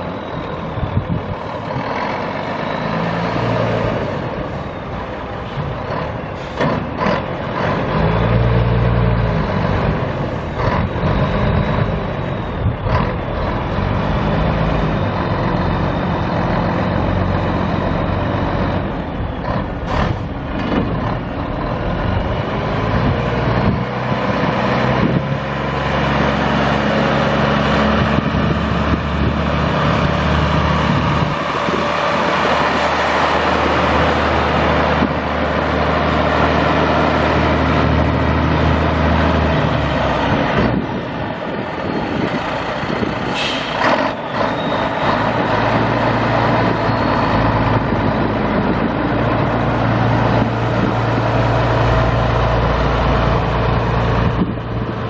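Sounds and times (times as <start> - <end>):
diesel truck engine running: 0.0 - 55.0
air hiss: 43.3 - 43.8.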